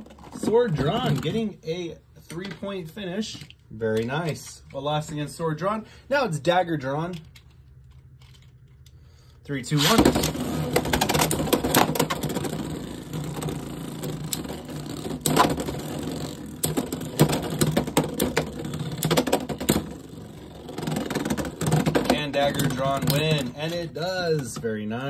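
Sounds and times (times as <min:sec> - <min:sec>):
spinning tops whirring: 0:09.7 - 0:23.8.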